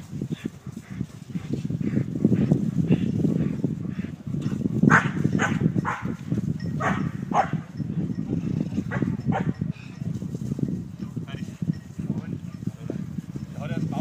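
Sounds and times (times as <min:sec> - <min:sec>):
dog barking: 0:04.9 - 0:06.2, 0:06.8 - 0:07.6, 0:08.9 - 0:09.6.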